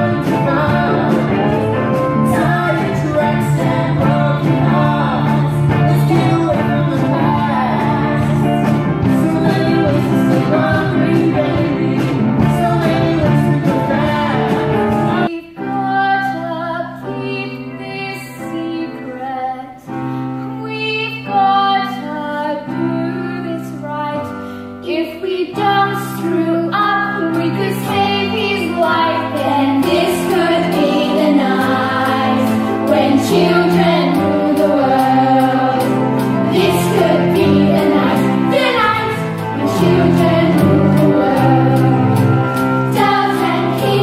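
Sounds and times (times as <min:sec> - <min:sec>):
band accompaniment: 0:00.0 - 0:15.3, 0:27.1 - 0:44.0
children singing: 0:00.0 - 0:15.3, 0:27.6 - 0:44.0
musical theatre singing: 0:00.0 - 0:24.5, 0:25.1 - 0:44.0.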